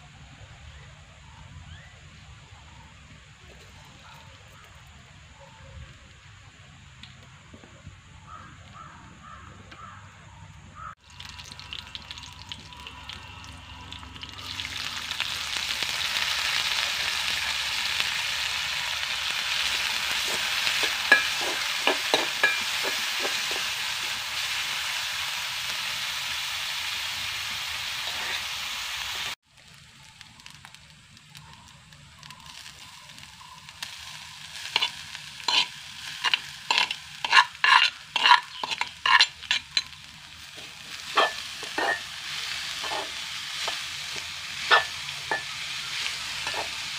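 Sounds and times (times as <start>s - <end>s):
seeds sizzling in a pot: 10.8s - 46.9s.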